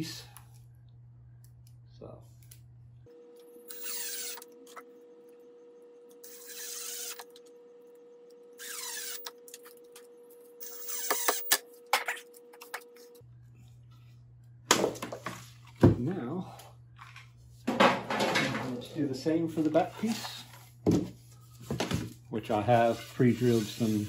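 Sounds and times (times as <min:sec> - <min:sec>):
drill driving screws into wood: 0:03.7 - 0:04.4, 0:06.2 - 0:07.3, 0:08.6 - 0:09.4, 0:10.6 - 0:11.6.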